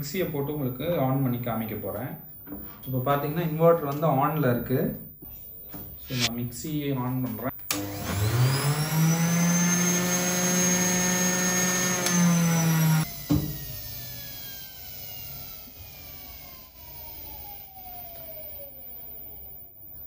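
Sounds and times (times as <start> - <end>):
juicer switch click: 7.7 - 8.0
juicer motor whining: 7.7 - 18.9.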